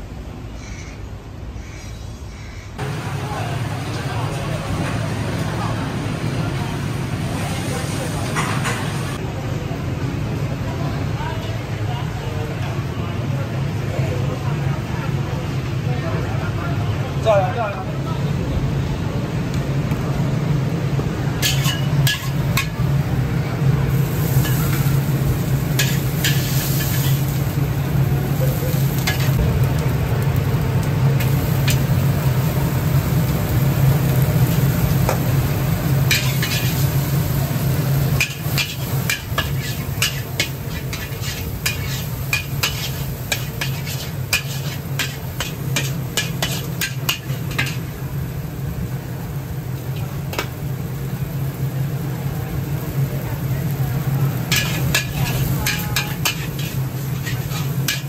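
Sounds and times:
noodles frying in wok: 0:02.8 - 0:58.0
metal ladle clanking on wok: 0:21.4 - 0:22.8, 0:54.5 - 0:58.0.

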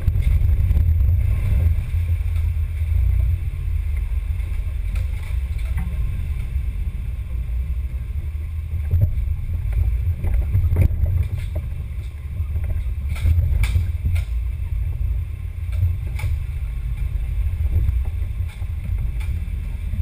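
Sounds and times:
low rumble of vibration: 0:00.0 - 0:20.0
wind on microphone: 0:00.0 - 0:20.0.

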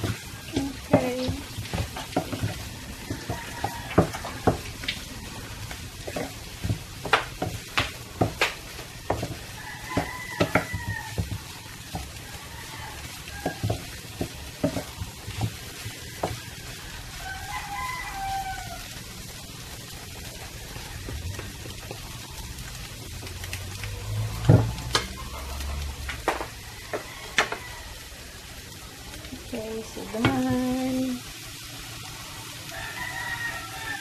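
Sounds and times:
spatula tapping in frying pan: 0:00.0 - 0:16.8, 0:24.4 - 0:25.2
eggs sizzling: 0:00.0 - 0:34.0
rooster crowing: 0:02.5 - 0:06.3, 0:09.1 - 0:14.9, 0:15.6 - 0:19.1, 0:23.9 - 0:28.5, 0:32.4 - 0:34.0.

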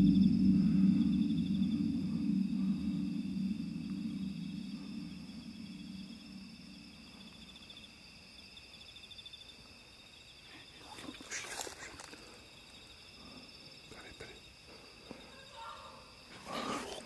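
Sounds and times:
low hum: 0:00.0 - 0:08.5
night insects trilling: 0:00.0 - 0:17.0.

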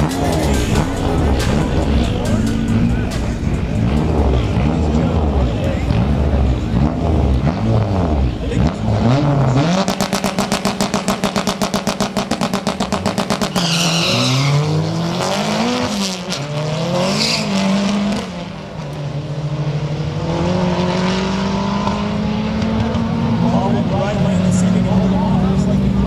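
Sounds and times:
drag car engine revving: 0:00.0 - 0:26.0
tyre squeal: 0:13.4 - 0:14.7.

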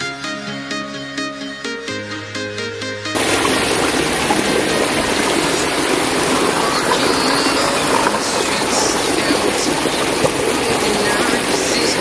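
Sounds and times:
waterfall rushing: 0:03.2 - 0:12.0.

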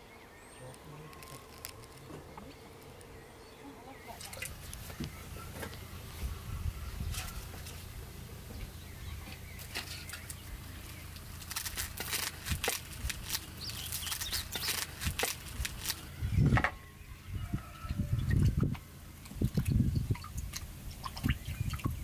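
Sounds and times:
onion skin crackling: 0:00.7 - 0:03.2, 0:09.6 - 0:16.2.

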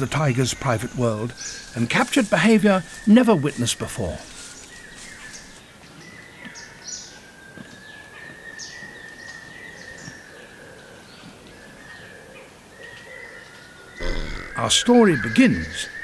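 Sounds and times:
bird chirps: 0:00.0 - 0:10.3, 0:13.7 - 0:16.0.

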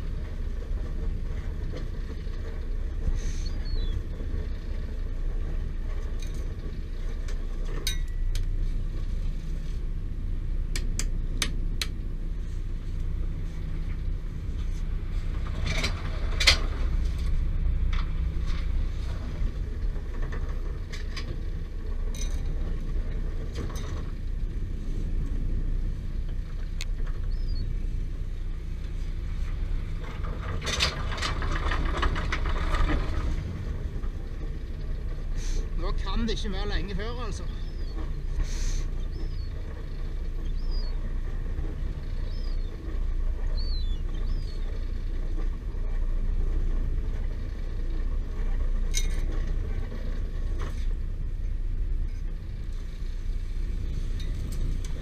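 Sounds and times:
boat engine droning: 0:00.0 - 0:55.0
line clicking and knocking: 0:10.7 - 0:12.0.

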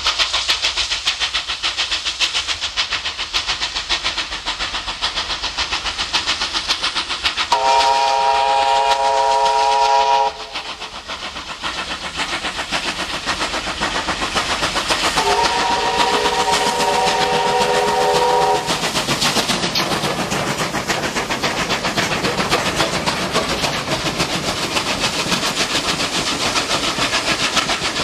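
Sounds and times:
steam locomotive chugging: 0:00.0 - 0:28.0
steam whistle chord: 0:07.5 - 0:10.6, 0:15.2 - 0:18.7.

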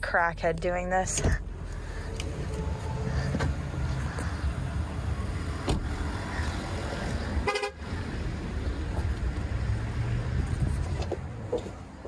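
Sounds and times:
car horn toot: 0:07.4 - 0:07.8.

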